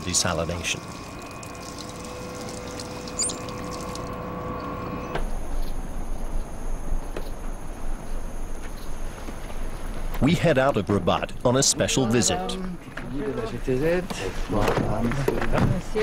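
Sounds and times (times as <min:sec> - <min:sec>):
tap water running: 0:00.0 - 0:05.0
machine hum: 0:00.0 - 0:08.7.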